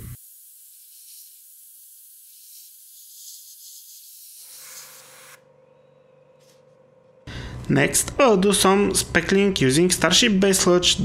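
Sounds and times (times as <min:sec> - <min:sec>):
airbrush spraying hiss: 0:00.0 - 0:05.4.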